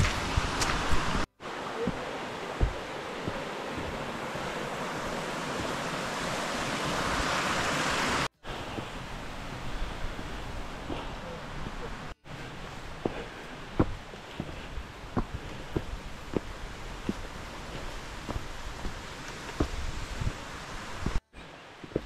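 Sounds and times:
soft thuds: 0:01.8 - 0:05.8
wind rushing on microphone: 0:14.6 - 0:21.2.

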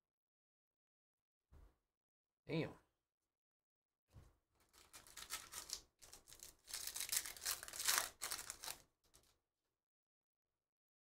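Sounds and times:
foil wrapper crinkling and tearing: 0:04.6 - 0:09.3.

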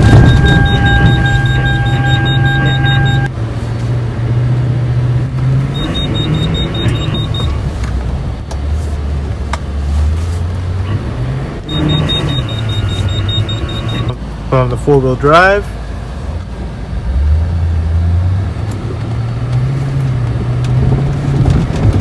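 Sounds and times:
truck engine revving: 0:00.0 - 0:03.3, 0:04.0 - 0:14.2.

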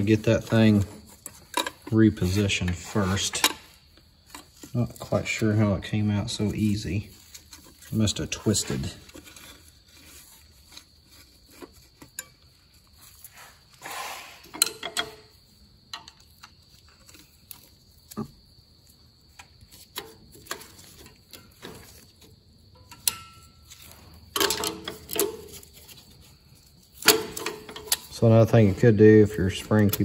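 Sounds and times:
metal parts clattering: 0:00.0 - 0:05.1, 0:14.4 - 0:15.3, 0:22.8 - 0:26.0, 0:27.0 - 0:28.7.

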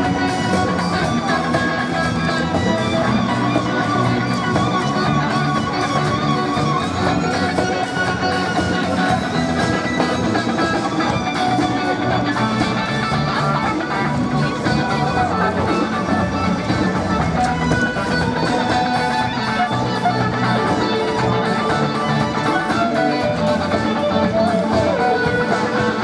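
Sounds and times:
drum kit and cymbals: 0:00.0 - 0:26.0
electric guitar: 0:00.0 - 0:26.0.

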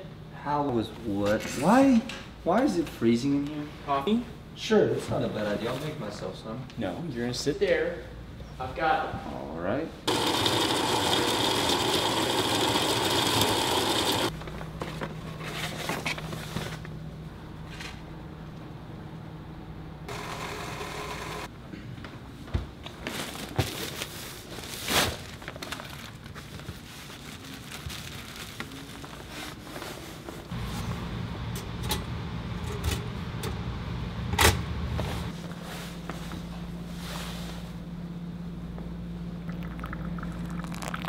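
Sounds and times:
electric coffee grinder running: 0:10.1 - 0:14.3, 0:20.1 - 0:21.5
steady low hum: 0:30.1 - 0:41.0.

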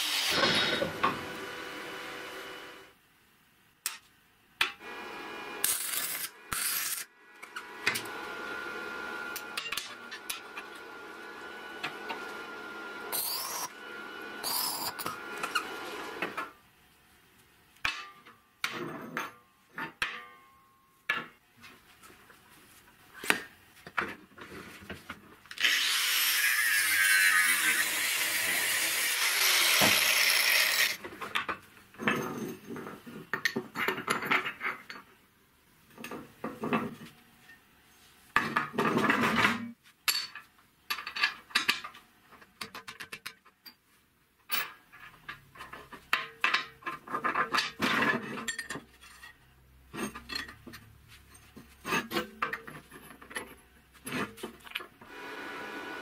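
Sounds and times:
metal parts clinking and scraping: 0:44.5 - 0:54.8.

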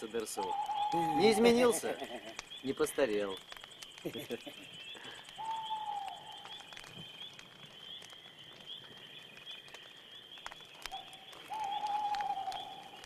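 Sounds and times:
insects trilling: 0:00.0 - 0:13.0
whistled animal call: 0:00.4 - 0:02.4, 0:04.0 - 0:06.6, 0:10.9 - 0:13.0
sharp clicks: 0:02.1 - 0:13.0.

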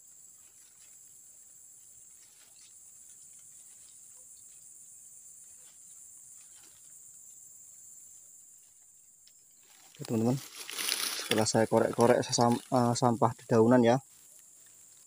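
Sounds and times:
high-pitched insect chorus: 0:00.0 - 0:15.0
dry leaves scraped by hand: 0:09.6 - 0:13.1.

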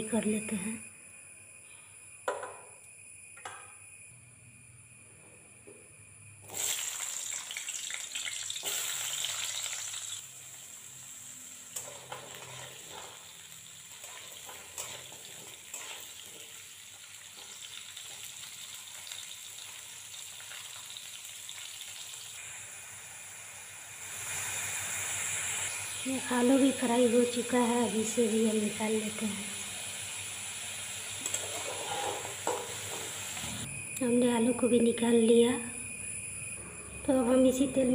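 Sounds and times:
potatoes sizzling in hot oil: 0:06.4 - 0:33.6
metal spatula scraping a pan: 0:11.8 - 0:16.6, 0:31.2 - 0:33.2.

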